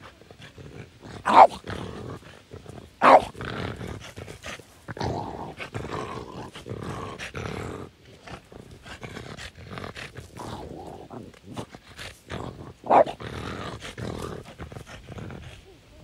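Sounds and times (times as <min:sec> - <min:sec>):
dog growling and grunting: 0:00.0 - 0:16.0
dog barking: 0:01.3 - 0:01.6, 0:03.0 - 0:03.3, 0:12.9 - 0:13.2.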